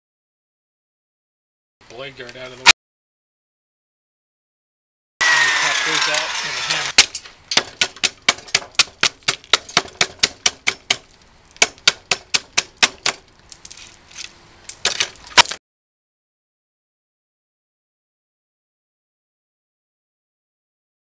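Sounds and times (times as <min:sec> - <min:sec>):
hammer knocking wood: 0:07.0 - 0:11.0, 0:11.6 - 0:13.2.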